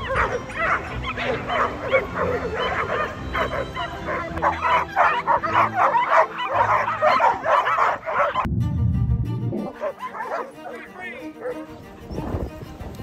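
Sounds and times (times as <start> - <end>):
pack of dogs barking: 0.0 - 8.5, 9.7 - 11.8.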